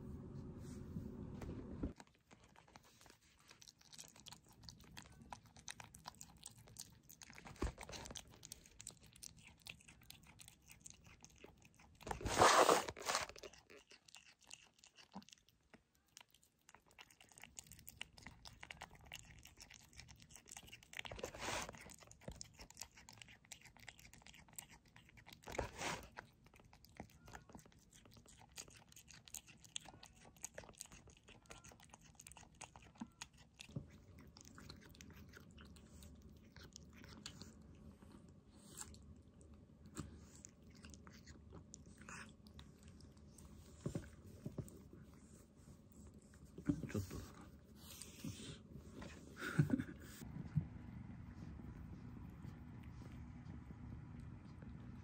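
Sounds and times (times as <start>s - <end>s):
kitten chomping: 1.9s - 39.1s, 39.7s - 45.2s
kitten chewing wet meat: 1.9s - 55.0s.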